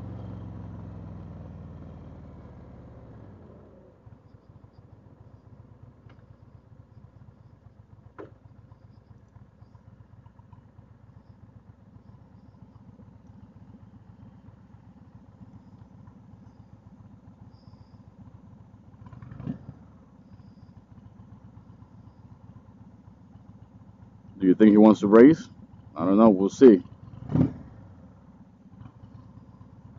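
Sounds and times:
motorcycle engine running: 0.0s - 29.9s
engine knock: 4.2s - 24.4s, 26.8s - 29.9s.

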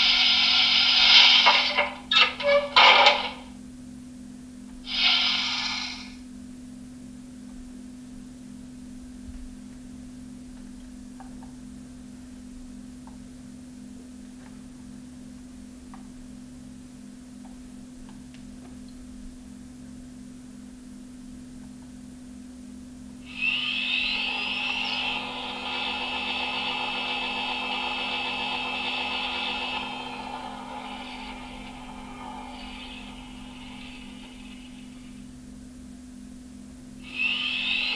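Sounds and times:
rising high-pitched whine: 0.0s - 3.4s, 23.2s - 35.4s, 37.0s - 37.9s
low hum with slow pulse: 0.0s - 14.1s, 22.4s - 37.9s.

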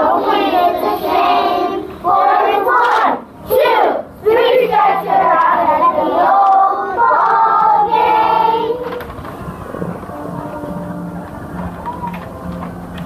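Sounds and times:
children singing in unison: 0.0s - 9.1s.

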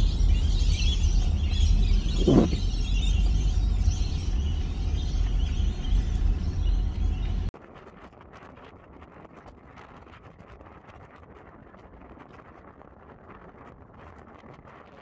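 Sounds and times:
road rumble: 0.0s - 7.5s.

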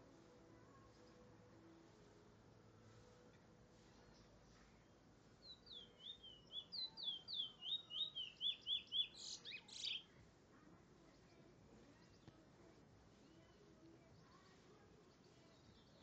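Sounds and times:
bird singing whistled notes: 5.4s - 10.1s.

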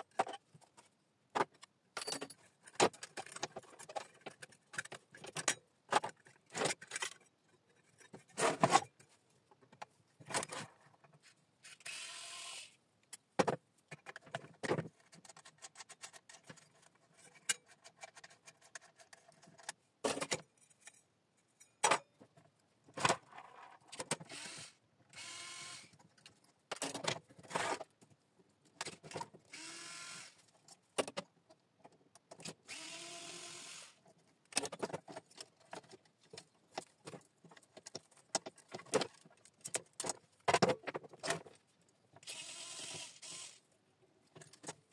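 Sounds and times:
metal parts clinking and knocking: 2.0s - 8.8s
cordless screwdriver motor: 11.7s - 12.8s, 24.3s - 25.9s, 29.5s - 30.4s, 32.7s - 34.0s, 42.2s - 43.6s.

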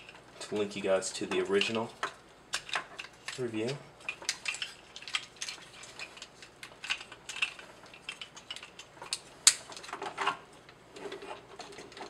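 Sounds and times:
plastic toy parts clicking: 1.5s - 10.0s.

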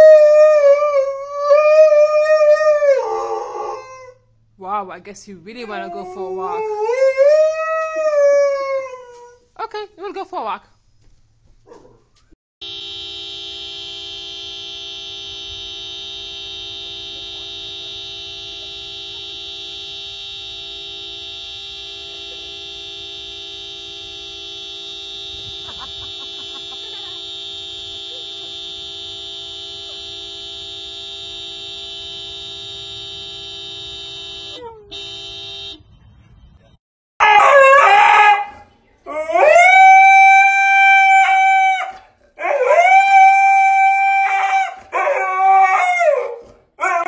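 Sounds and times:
car horn blaring: 12.6s - 36.8s.

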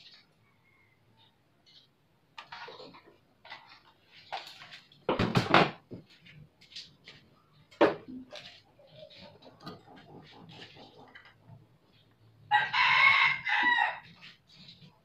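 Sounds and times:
rooster crowing: 12.5s - 14.1s.

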